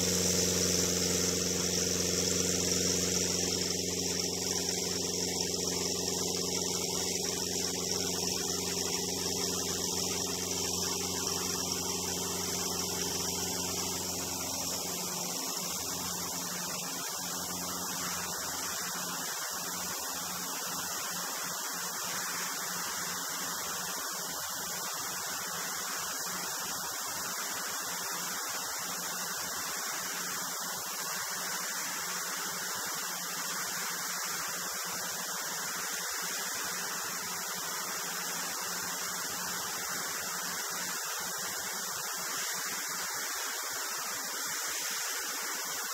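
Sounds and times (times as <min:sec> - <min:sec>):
rushing air hiss: 0:00.0 - 0:22.5
propeller aircraft engine droning: 0:00.0 - 0:23.5.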